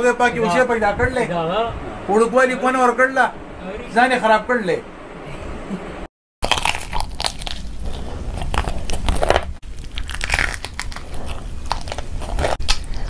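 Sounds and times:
crunching and chewing crisp food: 6.4 - 13.0.

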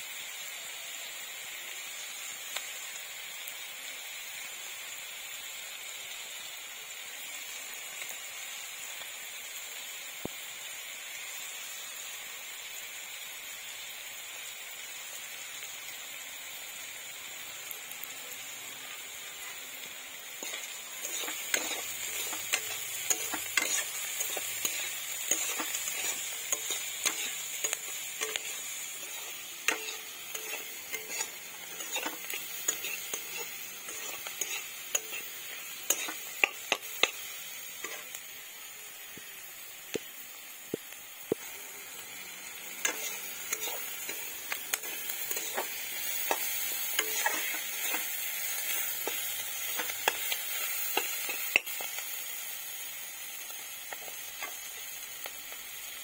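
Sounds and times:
onions sizzling in hot oil: 0.0 - 56.0
metal spatula scraping a pan: 20.3 - 38.1, 42.6 - 51.8.

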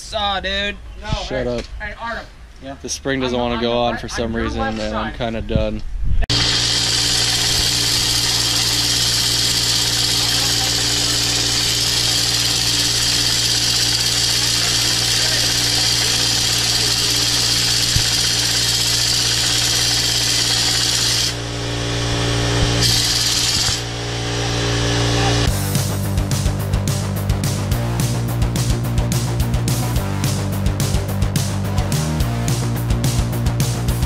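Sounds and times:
pneumatic tool running: 6.3 - 25.6.

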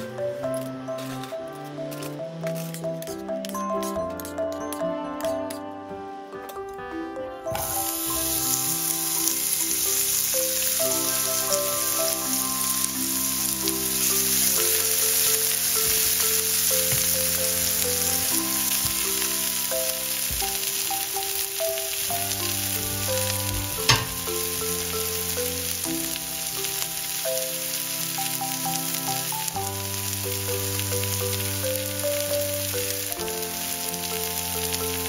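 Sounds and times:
onion sizzling in a frying pan: 1.7 - 3.6, 7.5 - 35.0
spatula stirring in a pan: 2.0 - 4.5.

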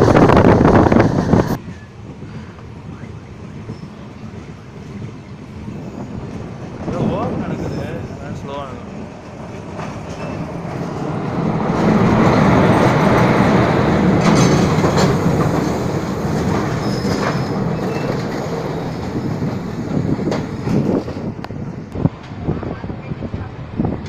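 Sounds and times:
train passing: 0.0 - 24.0
clatter over rail joints: 9.3 - 21.6.

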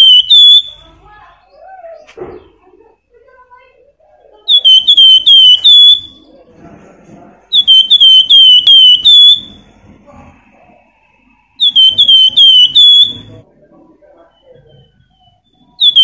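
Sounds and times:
bird singing whistled phrases: 0.0 - 0.8, 4.4 - 6.3, 7.5 - 9.6, 11.6 - 13.4, 14.7 - 16.0.

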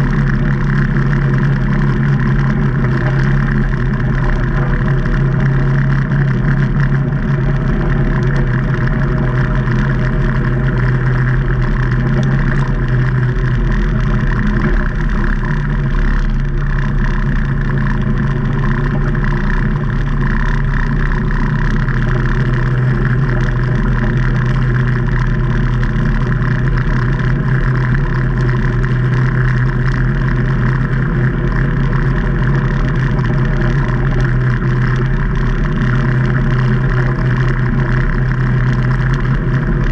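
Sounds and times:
side-by-side engine running steadily: 0.0 - 39.9.

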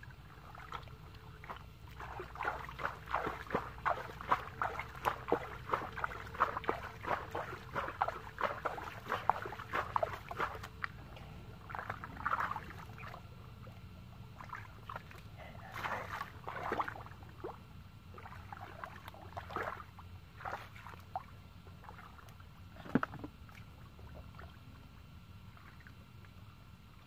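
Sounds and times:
mud squelches: 0.0 - 24.7
hands splashing in muddy puddle: 1.4 - 11.0, 14.4 - 17.1.

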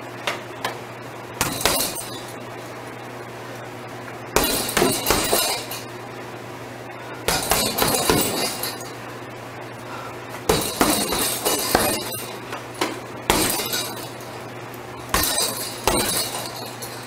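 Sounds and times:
punches on heavy punch bag: 1.4 - 2.2, 4.4 - 5.8, 7.3 - 8.6, 10.5 - 12.3, 13.3 - 14.0, 15.1 - 16.5
clinking rattle of hardware: 10.6 - 12.4, 13.3 - 14.3, 15.2 - 17.0.

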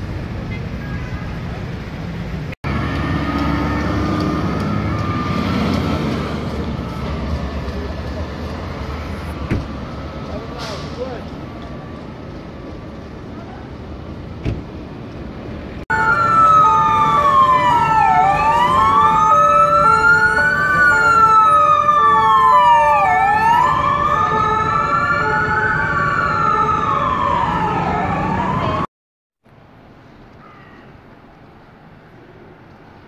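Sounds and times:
street noise: 0.0 - 33.0
two-tone siren: 3.1 - 5.9, 15.9 - 28.9
electronic siren wail: 4.4 - 5.7, 15.9 - 28.9.

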